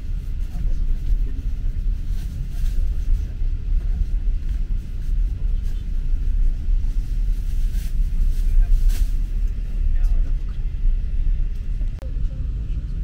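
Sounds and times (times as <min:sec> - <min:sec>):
moving train rumble: 0:00.0 - 0:13.0.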